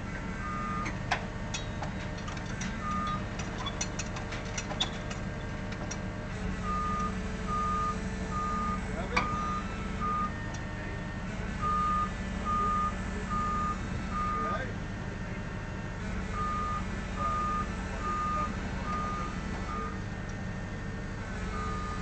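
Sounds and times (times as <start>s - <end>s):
low engine rumble: 0.0s - 22.0s
reversing alarm beeping: 0.4s - 1.0s, 2.8s - 3.3s, 6.6s - 10.5s, 11.6s - 14.6s, 16.3s - 20.0s, 21.4s - 22.0s.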